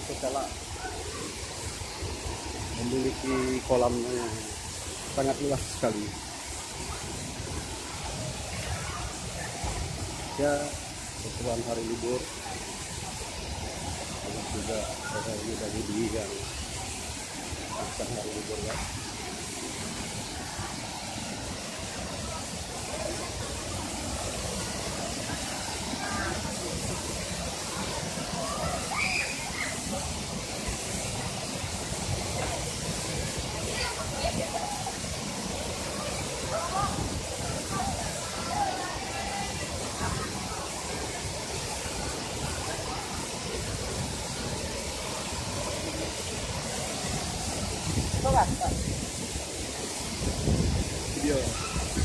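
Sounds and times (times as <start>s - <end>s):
waterfall rushing: 0.0s - 52.0s.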